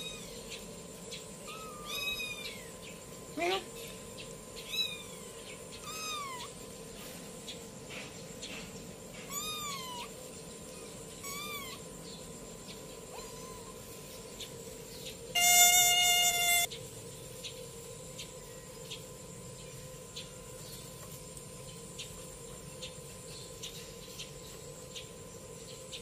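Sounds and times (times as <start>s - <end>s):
loud mosquito-like buzz: 0.0s - 7.3s, 9.0s - 16.8s
kitten meowing: 1.4s - 2.7s, 4.6s - 6.5s, 9.3s - 10.1s, 11.2s - 11.8s, 13.1s - 13.7s.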